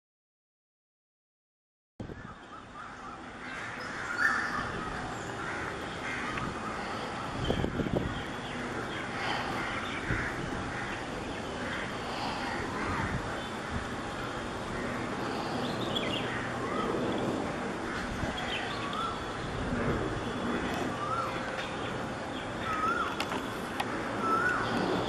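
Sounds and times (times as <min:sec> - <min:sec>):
steady background rumble: 0:03.2 - 0:25.0
crows cawing: 0:03.4 - 0:07.2, 0:08.8 - 0:13.9, 0:22.6 - 0:23.4, 0:24.2 - 0:24.7.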